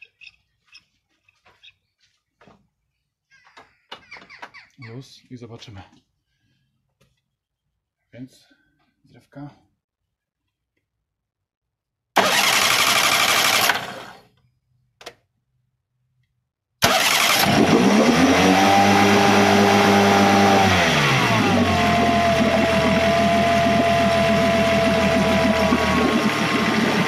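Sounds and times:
outboard motor cranking: 12.2s - 14.3s, 16.8s - 27.0s
outboard motor running: 16.9s - 27.0s.

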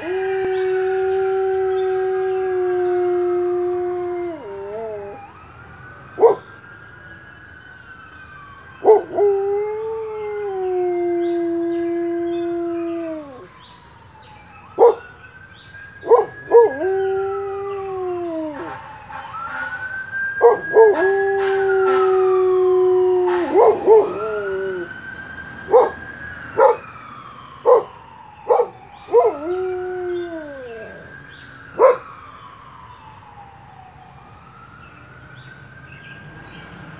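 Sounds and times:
dog howling: 0.0s - 5.3s, 8.8s - 13.5s, 16.0s - 18.8s, 20.4s - 24.9s, 25.7s - 26.0s, 27.7s - 31.1s
wailing siren: 0.0s - 36.9s.

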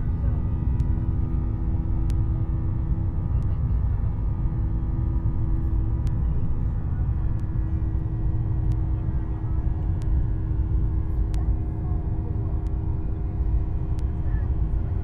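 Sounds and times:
airliner engine rumble: 0.0s - 15.0s
steady cabin hum: 0.0s - 15.0s.

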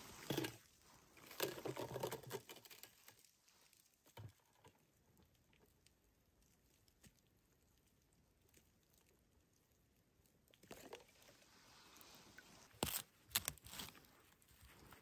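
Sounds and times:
ice crunching and crackling: 10.6s - 15.0s.

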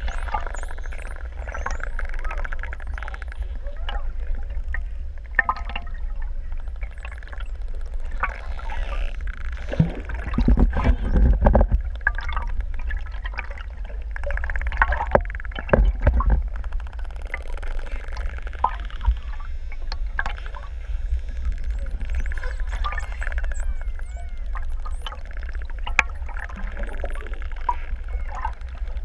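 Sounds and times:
dolphin clicks: 0.0s - 4.2s, 14.1s - 29.0s
low underwater rumble: 0.0s - 29.0s
dolphin whistles: 21.6s - 25.4s.

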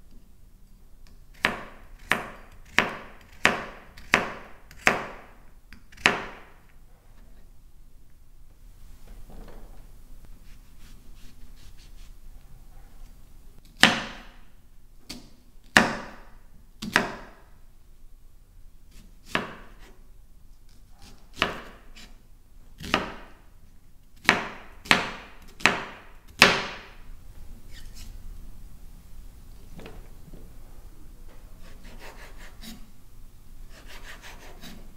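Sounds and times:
knife chopping on wooden board: 1.3s - 6.5s, 16.8s - 17.4s, 18.9s - 19.9s, 21.1s - 22.1s, 22.8s - 23.3s, 24.2s - 26.9s.

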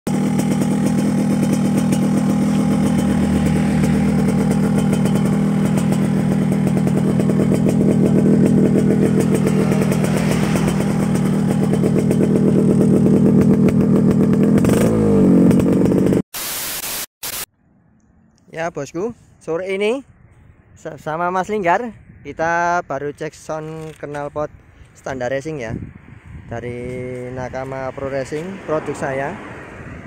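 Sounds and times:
two-stroke motorcycle engine running: 0.1s - 16.2s.

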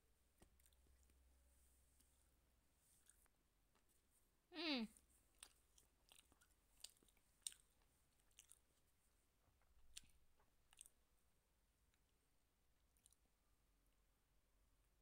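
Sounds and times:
toddler chewing mouth clicks: 5.4s - 8.8s.

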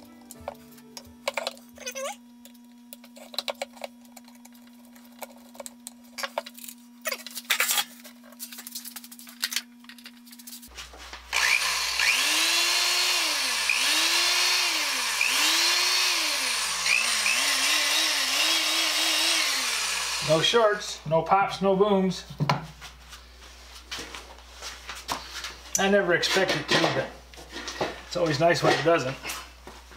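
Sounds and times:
electric drill motor whining: 11.3s - 20.8s.

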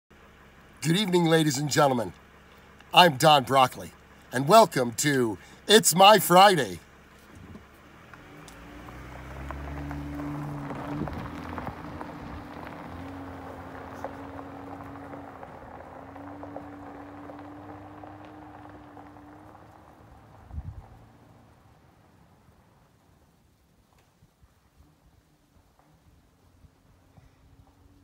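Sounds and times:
truck engine hum: 0.1s - 23.9s, 24.8s - 28.0s
tyres crunching on gravel: 0.4s - 20.9s.

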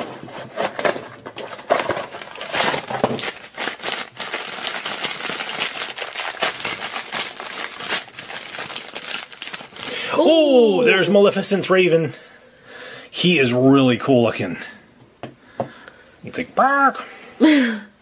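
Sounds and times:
foil wrapper crinkling: 0.4s - 10.0s.

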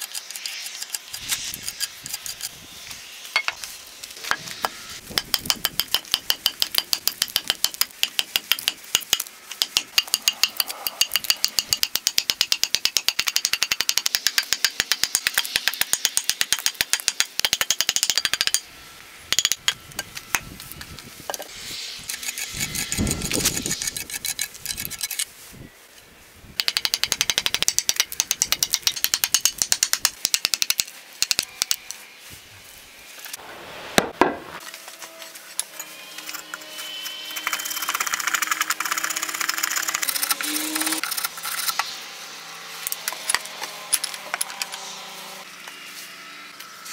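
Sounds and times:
hatchet chopping wood: 5.1s - 18.6s, 26.6s - 31.4s.

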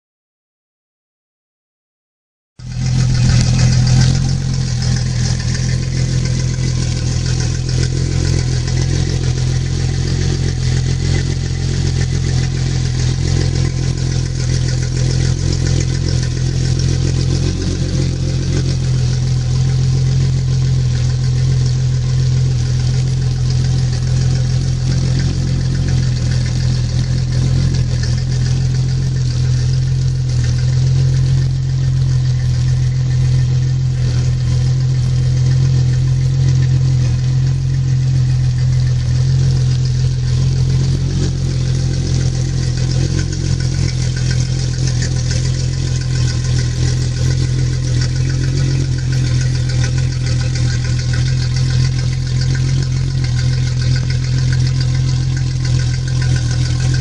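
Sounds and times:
outboard motor idling: 2.6s - 57.0s.

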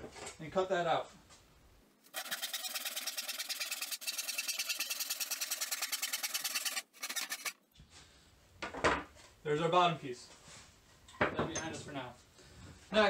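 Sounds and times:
hand saw cutting wood: 2.1s - 7.6s.

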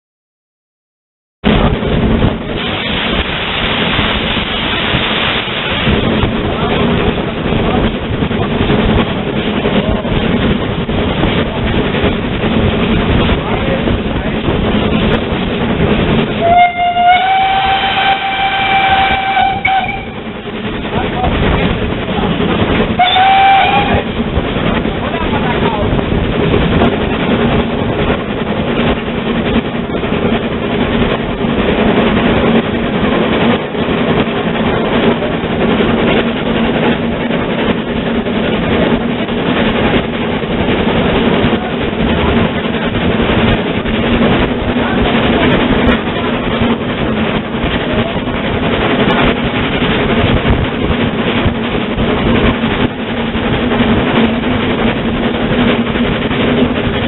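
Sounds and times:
steam locomotive running: 1.4s - 57.0s
wheels on rails: 1.4s - 57.0s
wind buffeting: 1.4s - 57.0s.

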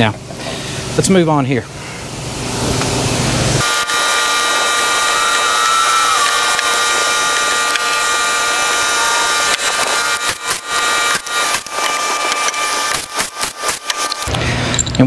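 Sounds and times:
handheld power tool whirring: 3.6s - 14.9s.

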